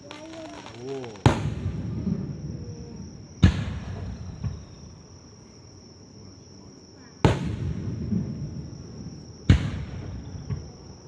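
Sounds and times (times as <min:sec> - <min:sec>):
fireworks bursting with echo: 0:00.0 - 0:04.9, 0:07.2 - 0:11.0.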